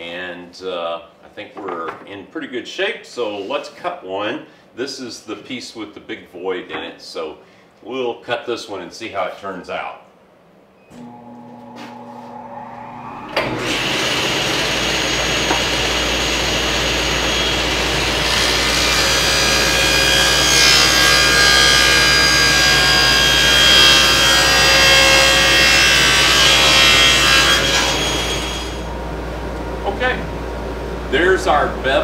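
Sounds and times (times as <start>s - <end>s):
table saw running: 11.0s - 29.3s
saw blade cutting plywood: 13.4s - 28.9s.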